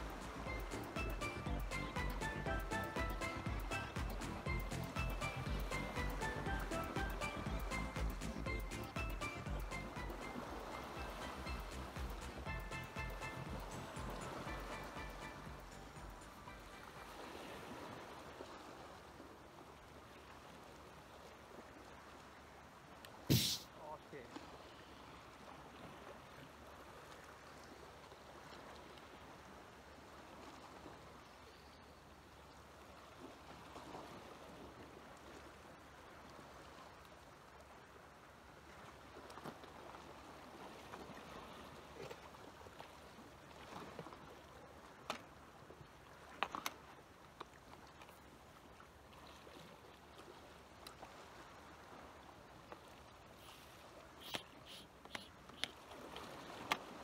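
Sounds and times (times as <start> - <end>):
sea water lapping against rocks: 0.0 - 1.3, 38.6 - 57.0
soft clicks: 54.2 - 55.8.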